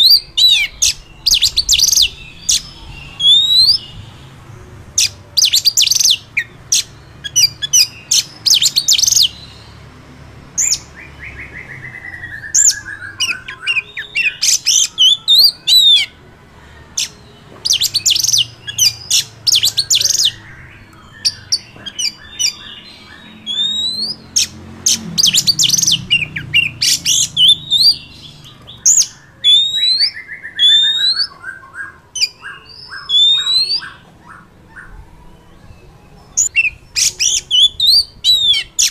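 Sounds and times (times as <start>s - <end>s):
magpie-robin singing: 0.0s - 38.9s.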